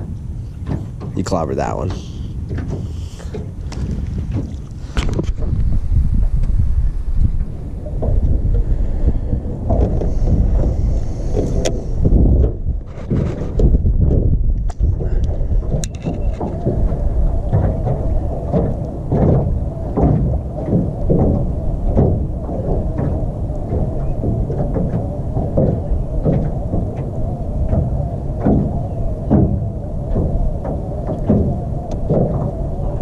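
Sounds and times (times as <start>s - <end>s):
short knocks: 0.0s - 5.6s
wind buffeting microphone: 0.0s - 33.0s.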